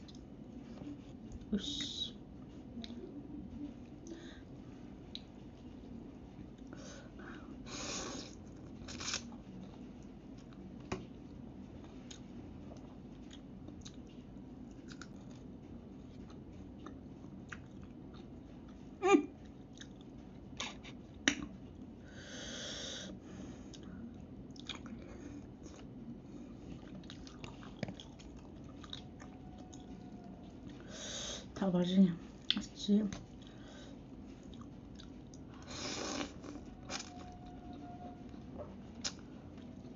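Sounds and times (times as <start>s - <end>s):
chewing: 11.8s - 18.8s, 19.4s - 20.8s, 24.5s - 25.9s, 26.6s - 30.8s, 34.3s - 39.9s.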